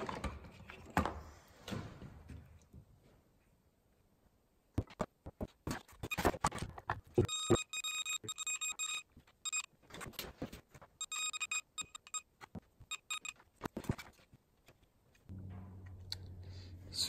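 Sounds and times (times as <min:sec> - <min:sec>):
multimeter high beeping: 0:07.2 - 0:09.7, 0:11.0 - 0:12.2, 0:12.9 - 0:13.4.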